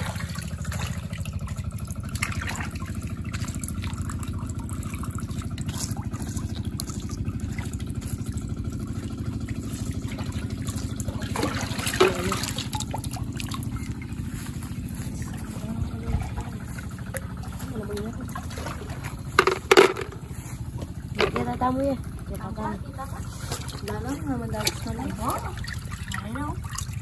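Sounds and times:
shallow water splashing: 0.0 - 27.0
steady low rumble: 6.5 - 25.9.

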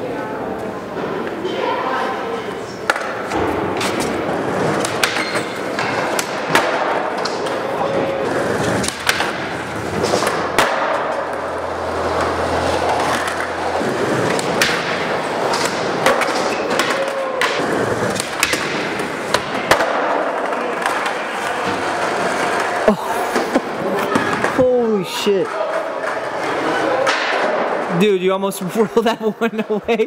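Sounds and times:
skateboard wheels rolling: 2.5 - 28.0
skateboard clacks: 2.8 - 24.6
skateboard sliding on ledge: 3.4 - 24.6.

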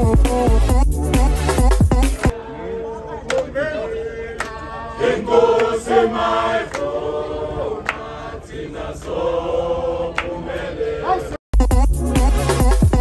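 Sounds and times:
men singing together: 2.3 - 11.2.

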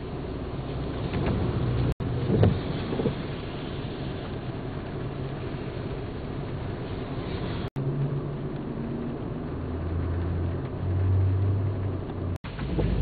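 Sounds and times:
vehicle engines rumbling: 0.0 - 13.0.

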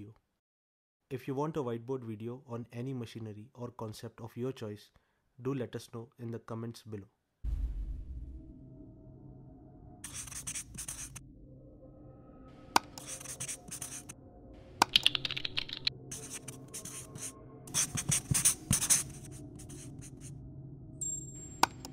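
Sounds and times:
marker pen on whiteboard: 10.0 - 11.2, 12.8 - 14.2, 14.8 - 20.3, 21.1 - 21.9.

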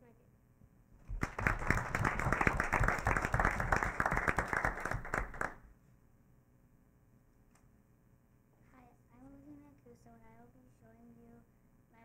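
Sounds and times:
audience applauding: 1.1 - 5.6.

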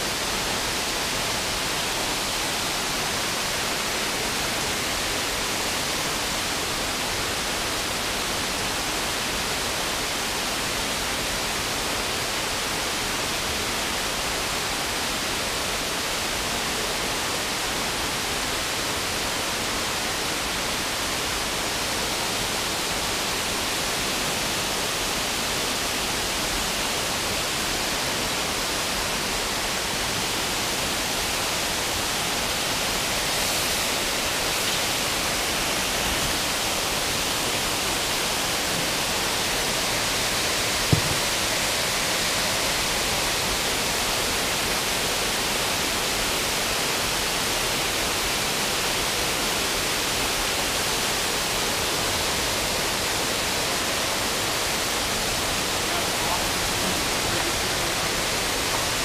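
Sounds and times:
water rushing in a creek: 0.0 - 59.0
short knock: 40.9 - 41.3.

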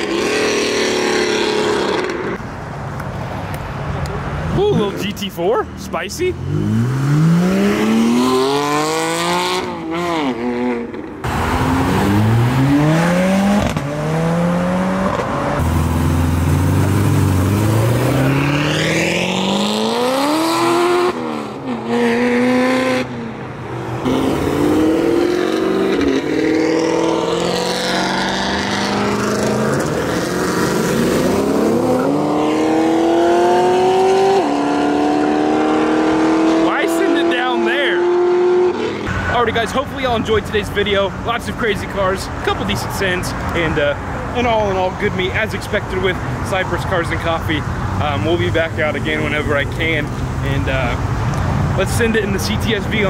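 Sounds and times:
cars accelerating hard: 0.0 - 2.4, 6.3 - 40.1.

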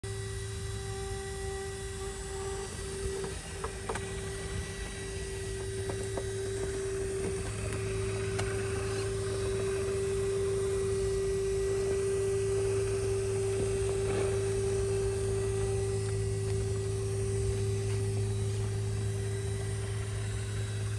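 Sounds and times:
electric motor whining: 0.0 - 20.9.

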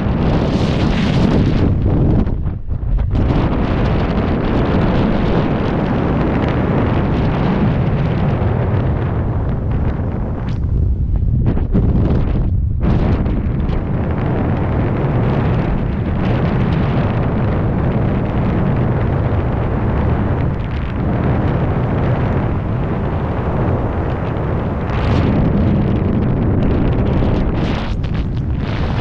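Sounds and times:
wind buffeting microphone: 0.0 - 29.0.

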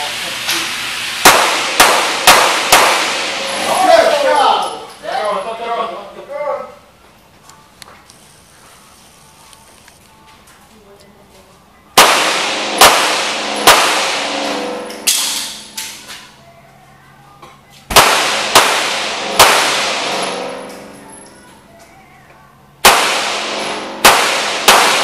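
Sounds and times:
handgun shots echoing: 1.2 - 3.4, 12.0 - 16.0, 17.9 - 21.0, 22.8 - 25.0.

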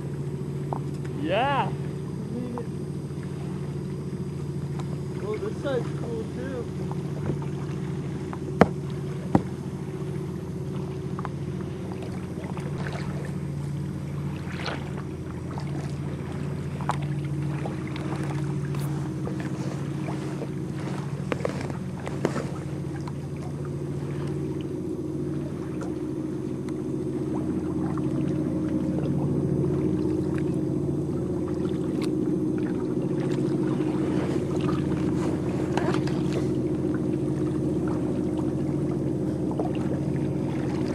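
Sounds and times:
steady low hum: 0.0 - 40.9
water lapping and splashing: 0.0 - 40.9
sharp knocks on kayak: 8.6 - 9.6, 21.3 - 22.6.

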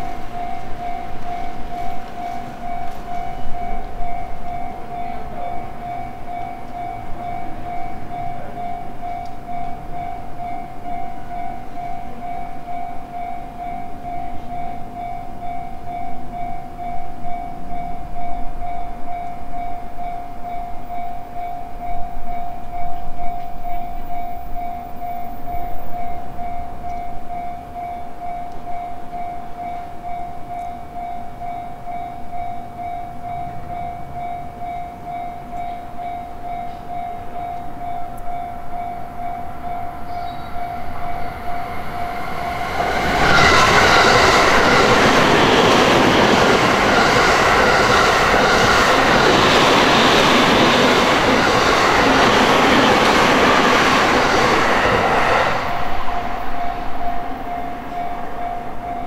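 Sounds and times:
level crossing alarm ringing: 0.0 - 59.0
train passing: 0.0 - 59.0.

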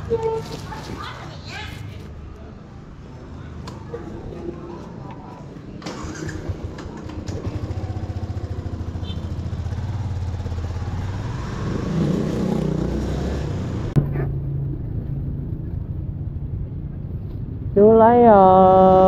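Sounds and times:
motorcycle engine running: 5.9 - 17.7.

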